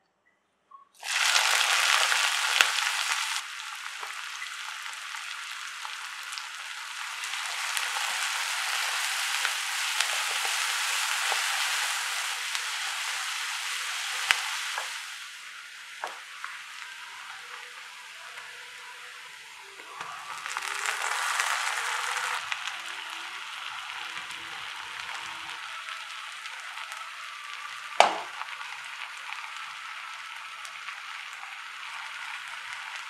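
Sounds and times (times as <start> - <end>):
onions sizzling in oil: 1.0 - 33.0
spatula tapping pan: 28.0 - 28.4.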